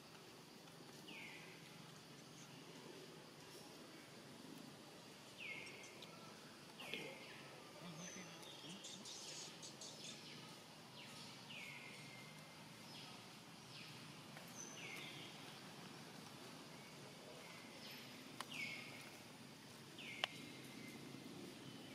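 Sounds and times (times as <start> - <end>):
faint clicks: 18.4 - 19.2, 20.1 - 20.5.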